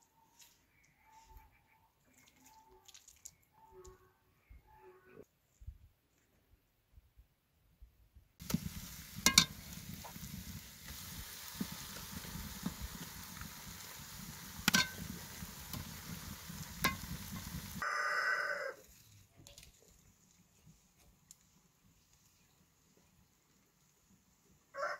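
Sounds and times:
meat sizzling in hot oil: 8.4 - 17.8
metal spoon clinking on pot: 9.3 - 9.6, 14.7 - 15.0
farm animal call: 17.8 - 18.9.

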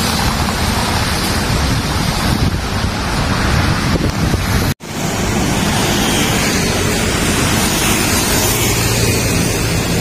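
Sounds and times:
road traffic rushing: 0.0 - 10.0
wind buffeting microphone: 0.0 - 10.0.

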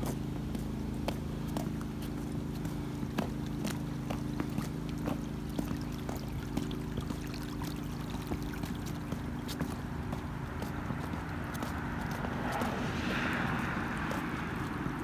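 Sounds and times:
footsteps: 0.0 - 15.0
steady low hum: 0.0 - 15.0
water trickling: 3.2 - 11.4.

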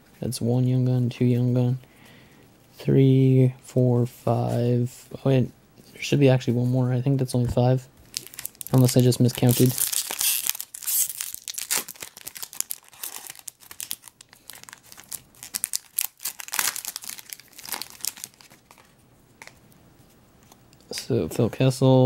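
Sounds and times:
foil wrapper crinkling and tearing: 8.0 - 19.0.

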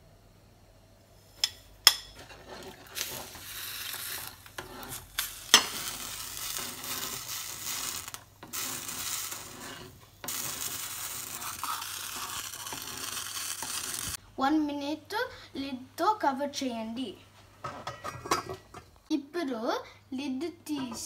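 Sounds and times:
bubbling hiss in a pan: 1.2 - 14.2.

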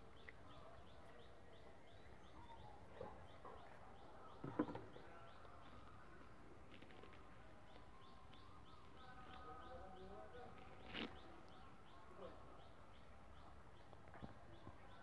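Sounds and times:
faint high bird chirps: 6.9 - 15.0.

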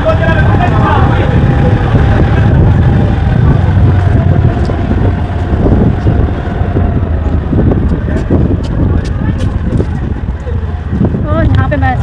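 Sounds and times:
motor scooter rumble: 0.0 - 12.0
wind buffeting microphone: 0.0 - 12.0.

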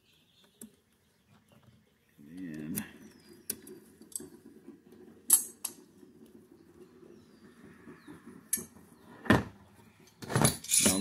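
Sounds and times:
metal clicks and clinks: 10.1 - 11.0.

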